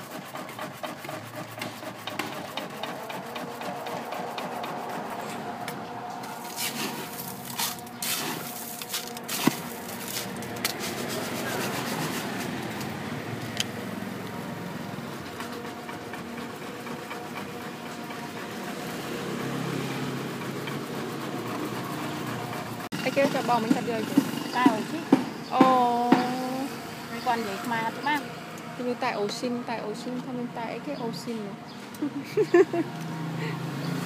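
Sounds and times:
street traffic noise: 0:00.0 - 0:34.0
bottles clinking in crushed ice: 0:06.4 - 0:11.0.

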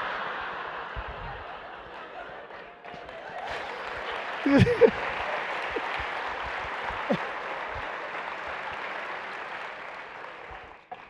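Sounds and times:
audience laughing: 0:00.0 - 0:08.2
audience applauding: 0:00.0 - 0:11.0.

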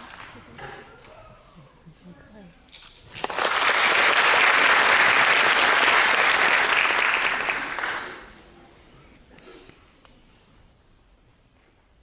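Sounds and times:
audience applauding: 0:03.1 - 0:08.4.

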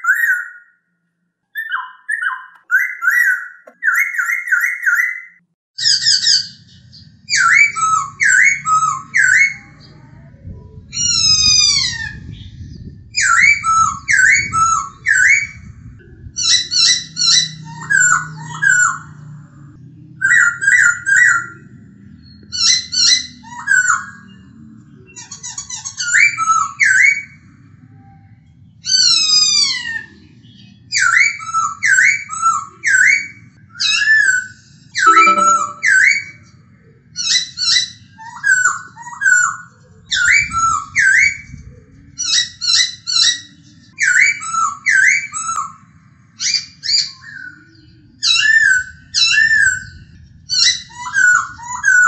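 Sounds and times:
bird singing whistled notes: 0:35.1 - 0:36.0.

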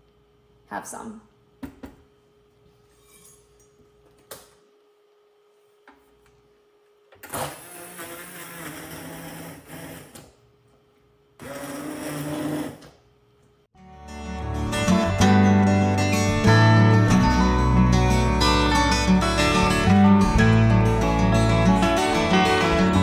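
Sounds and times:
immersion blender running: 0:07.2 - 0:10.3, 0:11.4 - 0:12.9
acoustic guitar music: 0:13.8 - 0:23.0.

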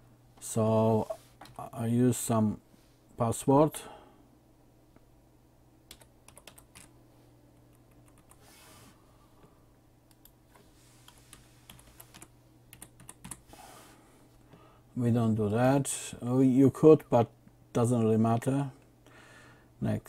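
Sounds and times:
low steady hum: 0:00.0 - 0:20.0
keyboard typing: 0:05.9 - 0:06.9, 0:07.6 - 0:08.4, 0:11.1 - 0:13.4.

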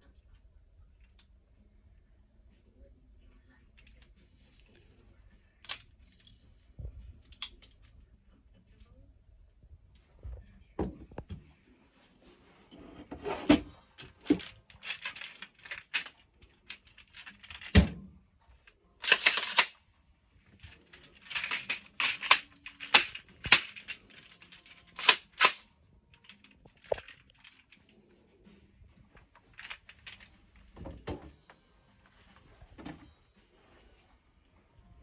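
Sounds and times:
magazine clicking into rifle: 0:19.0 - 0:19.8, 0:21.2 - 0:25.7
rifle clicks and clacks: 0:19.0 - 0:19.8, 0:21.2 - 0:25.7.

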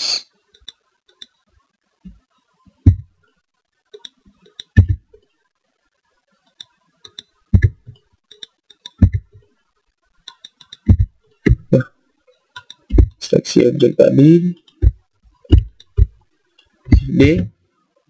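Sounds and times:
mouse and keyboard clicking: 0:00.5 - 0:01.4, 0:04.0 - 0:05.0, 0:06.5 - 0:09.4, 0:10.2 - 0:11.8, 0:12.6 - 0:13.2, 0:14.6 - 0:17.4
dull thuds: 0:02.8 - 0:03.1, 0:04.8 - 0:05.0, 0:07.5 - 0:08.0, 0:10.9 - 0:11.8, 0:12.9 - 0:13.2, 0:14.8 - 0:16.2, 0:16.9 - 0:17.5.

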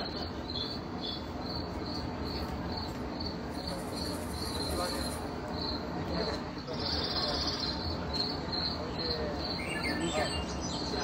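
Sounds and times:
insect chirping: 0:00.0 - 0:10.0.

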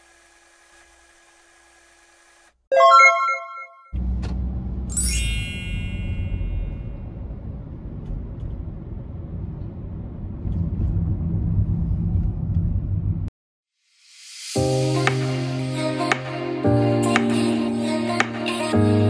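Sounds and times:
car road rumble: 0:04.0 - 0:04.9, 0:05.9 - 0:13.3
sparkling descending chime: 0:04.9 - 0:06.9.

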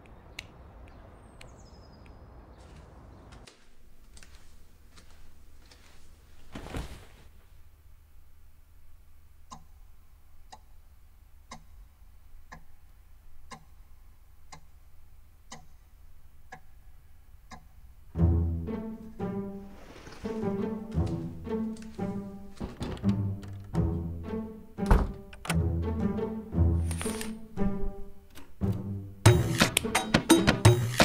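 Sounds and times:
short rustle: 0:03.4 - 0:07.6, 0:19.6 - 0:20.6
clock ticking: 0:09.4 - 0:10.8, 0:11.4 - 0:18.0
low bowed-string music: 0:18.1 - 0:31.0.

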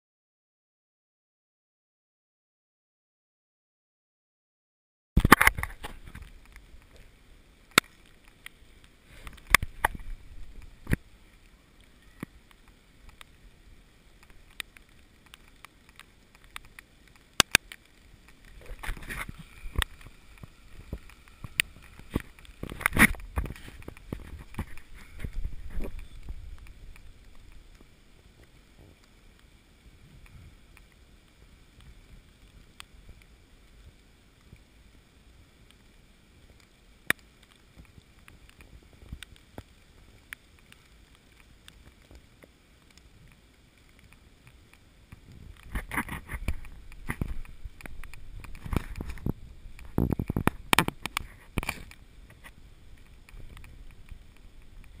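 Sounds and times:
twigs snapping: 0:05.2 - 0:07.0, 0:07.7 - 0:11.0, 0:14.2 - 0:27.9, 0:43.8 - 0:55.0
rustling through wet undergrowth: 0:05.2 - 0:55.0.

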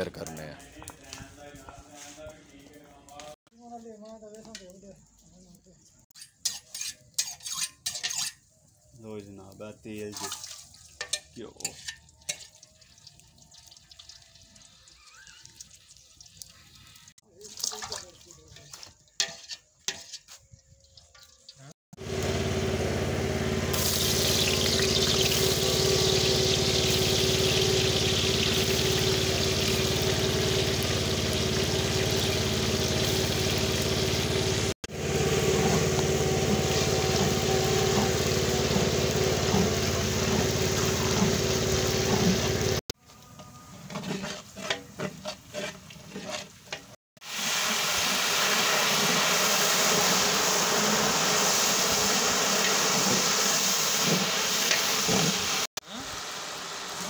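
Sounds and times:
ladle stirring: 0:17.6 - 0:20.4, 0:43.8 - 0:47.0
onions sizzling in oil: 0:22.0 - 0:42.8, 0:46.6 - 0:57.0.

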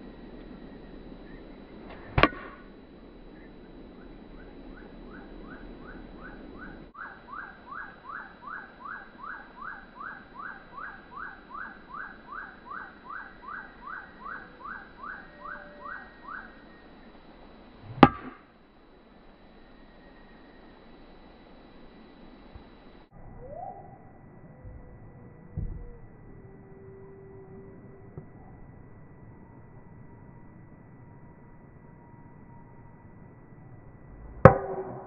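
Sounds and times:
golf club striking ball: 0:02.1 - 0:02.6, 0:18.0 - 0:18.4
bird whistling: 0:03.3 - 0:16.8.

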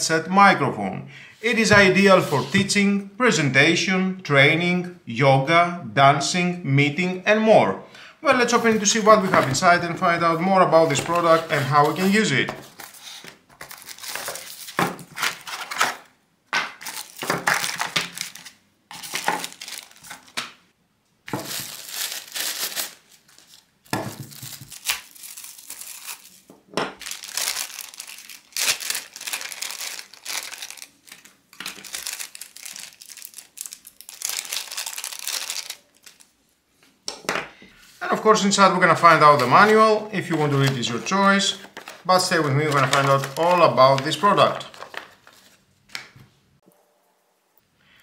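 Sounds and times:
plastic bags crinkling: 0:10.8 - 0:16.0, 0:16.8 - 0:20.5, 0:21.3 - 0:36.3, 0:38.9 - 0:45.6.

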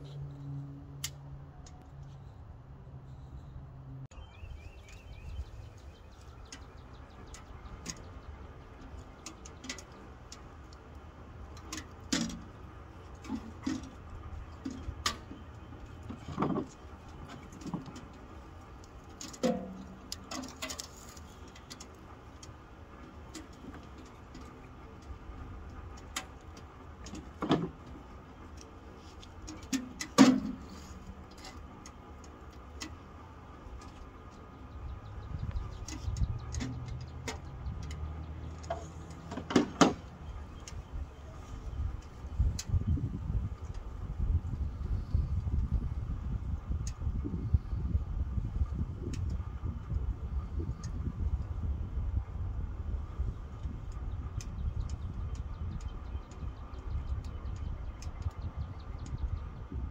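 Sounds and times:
bird chirping: 0:04.1 - 0:10.1.

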